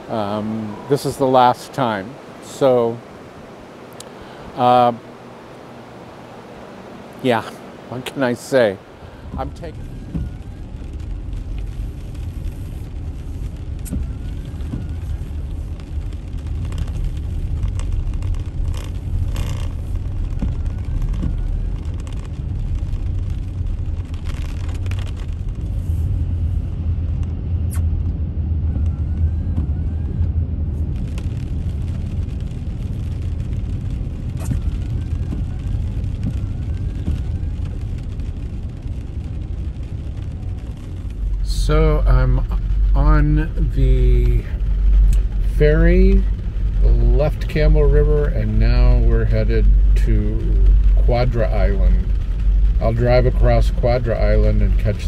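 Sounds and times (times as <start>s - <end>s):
moving vehicle rumble: 0.0s - 55.0s.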